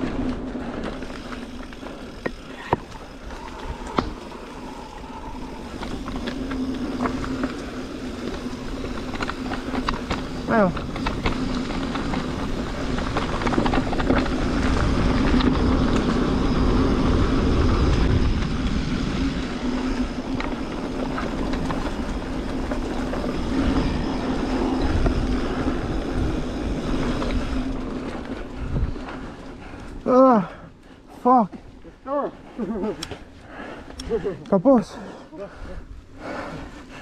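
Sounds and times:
bike tyres rushing on dirt: 0:00.0 - 0:37.0
bike knocks and rattles: 0:05.8 - 0:15.7.

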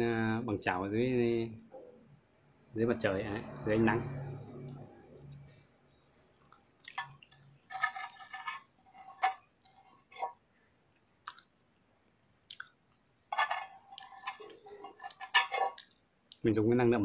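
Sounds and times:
utensil scraping dishware: 0:07.0 - 0:10.4, 0:13.3 - 0:15.8
person chewing: 0:10.9 - 0:11.6, 0:12.5 - 0:12.7.

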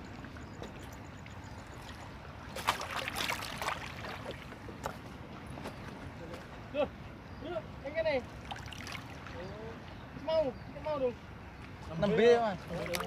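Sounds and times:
water lapping and trickling: 0:00.0 - 0:13.0.

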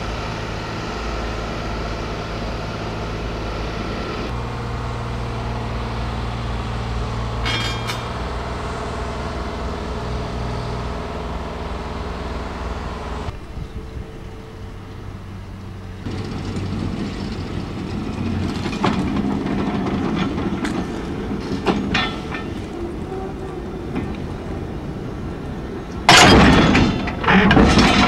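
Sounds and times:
low hum: 0:00.0 - 0:28.0
railway carriages rolling: 0:00.0 - 0:28.0
metal clanks from couplings: 0:07.4 - 0:08.3, 0:16.1 - 0:24.3, 0:25.9 - 0:28.0.

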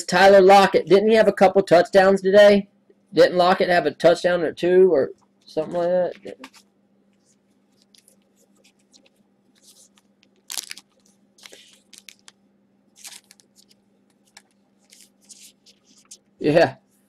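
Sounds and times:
foil wrappers crinkling and tearing: 0:07.8 - 0:12.4, 0:13.0 - 0:16.2.

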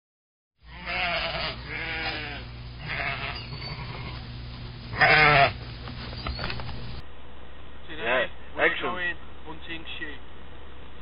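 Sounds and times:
sheep bleating: 0:00.6 - 0:04.3, 0:04.9 - 0:05.6
steady low hum: 0:00.6 - 0:11.0.

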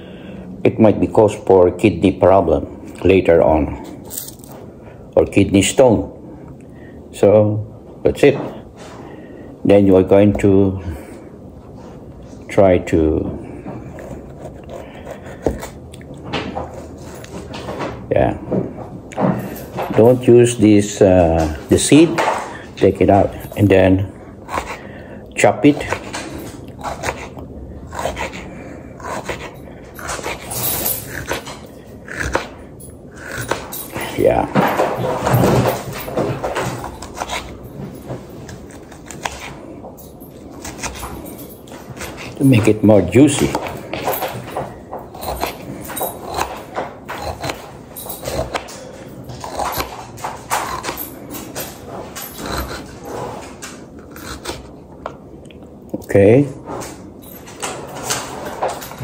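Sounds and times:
knife scrape: 0:26.8 - 0:31.4, 0:37.0 - 0:37.6, 0:38.4 - 0:39.7, 0:45.2 - 0:48.7.

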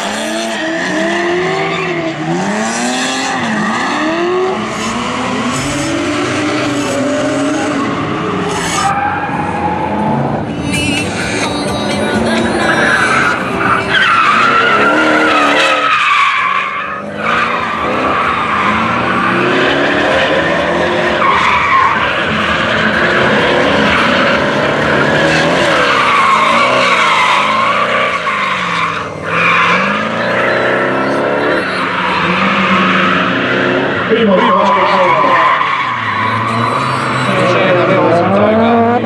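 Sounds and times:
car engine revving: 0:00.0 - 0:39.0
tyres squealing: 0:10.6 - 0:38.1.

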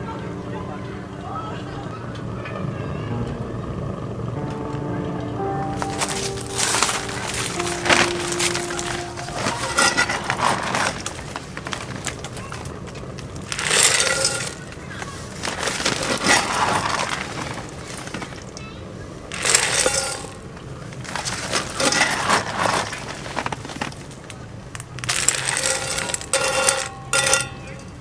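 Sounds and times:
wood pellets clattering: 0:05.8 - 0:18.6, 0:19.3 - 0:28.0.

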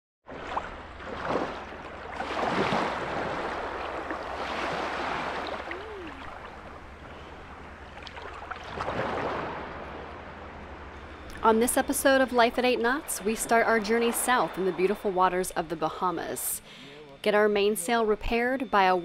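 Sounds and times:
small waves washing over sand: 0:00.3 - 0:07.3, 0:07.9 - 0:09.8.

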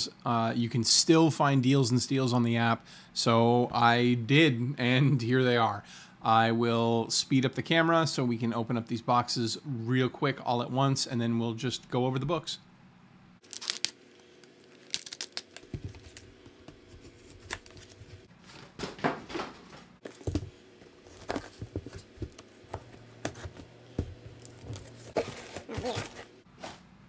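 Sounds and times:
boxes and packing being torn: 0:13.4 - 0:18.3, 0:20.0 - 0:26.3.

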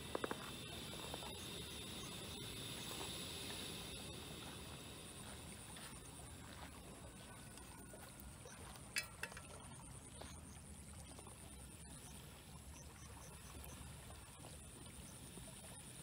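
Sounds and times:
frying pan clanking on grate: 0:08.9 - 0:09.5.

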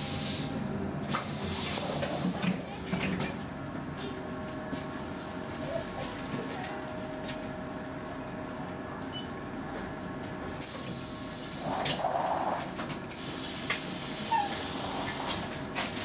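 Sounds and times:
tram equipment hum: 0:00.0 - 0:16.0.

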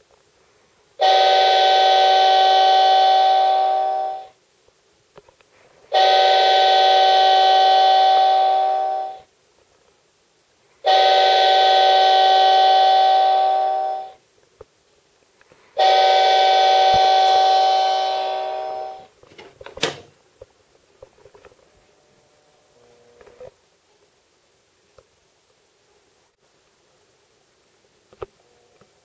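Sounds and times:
alarm clock train whistle: 0:01.0 - 0:04.4, 0:05.9 - 0:09.3, 0:10.8 - 0:14.2, 0:15.8 - 0:19.1.

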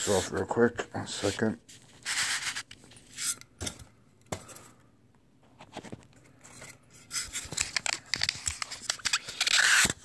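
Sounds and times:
styrofoam scraping cardboard: 0:02.0 - 0:02.7.

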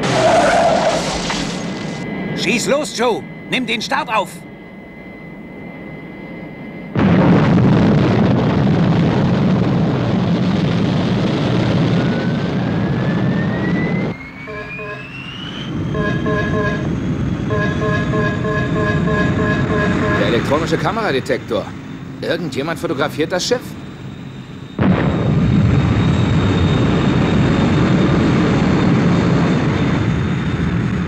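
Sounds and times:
engine blast with rising whine: 0:00.0 - 0:31.0
engine hum inside cockpit: 0:13.5 - 0:24.8
rapid electronic beeps: 0:14.1 - 0:20.9.

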